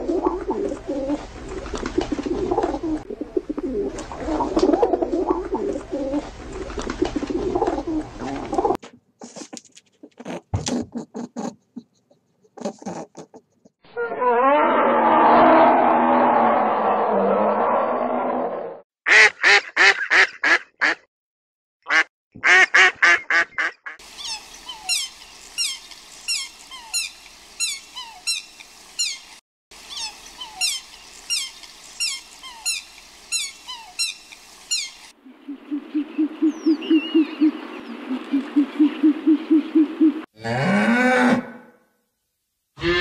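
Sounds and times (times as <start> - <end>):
steady hiss: 24.0 - 37.0
cow mooing: 40.4 - 41.7.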